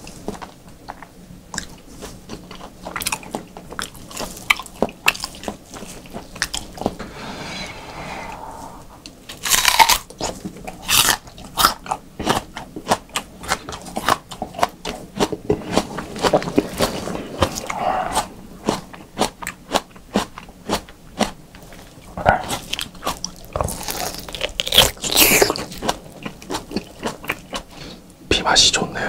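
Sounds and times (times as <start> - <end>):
chewing raw meat: 0.1 - 6.6, 9.5 - 27.9
loud noise burst: 7.0 - 9.6.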